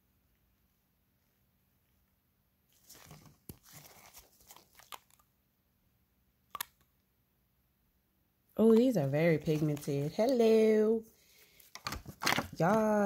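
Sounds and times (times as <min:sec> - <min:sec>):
disposable gloves crinkling: 0:02.7 - 0:05.3, 0:08.7 - 0:10.7.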